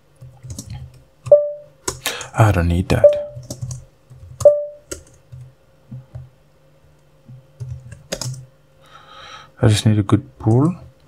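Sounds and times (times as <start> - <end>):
typing on computer keyboard: 0.2 - 2.0, 3.2 - 5.5, 7.6 - 8.4.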